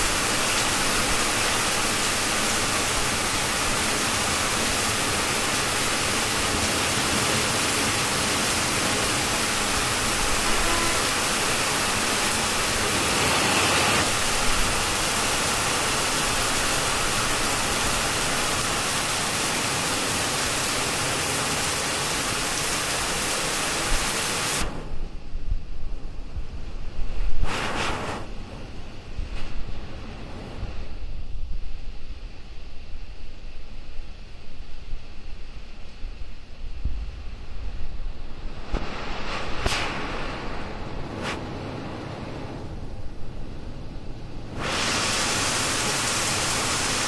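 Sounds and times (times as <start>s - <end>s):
heavy rain on leaves: 0.0s - 24.9s, 44.5s - 47.0s
low wind rumbling on microphone: 0.0s - 47.0s.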